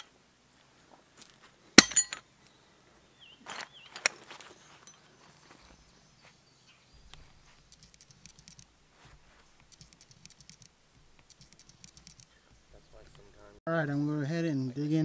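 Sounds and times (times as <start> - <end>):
rapid high-pitched clicking: 7.6 - 8.7, 9.6 - 12.4.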